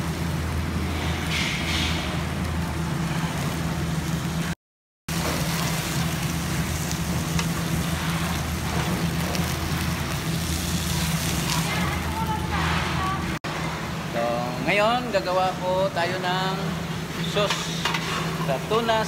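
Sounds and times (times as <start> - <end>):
fish sizzling on a grill: 0.0 - 4.5, 5.1 - 13.4.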